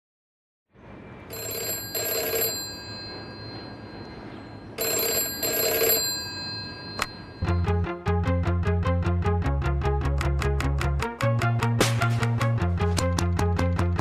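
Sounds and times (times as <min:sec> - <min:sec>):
telephone bell ringing: 0:01.3 - 0:07.5.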